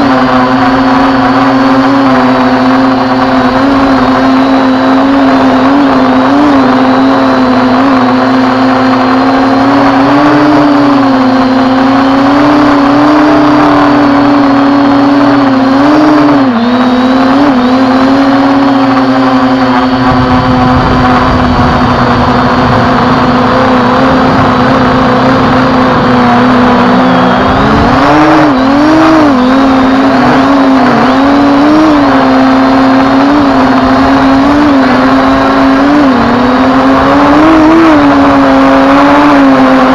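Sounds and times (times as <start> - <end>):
drone motors and propellers: 0.0 - 39.9
wind rumble on microphone: 17.8 - 39.9.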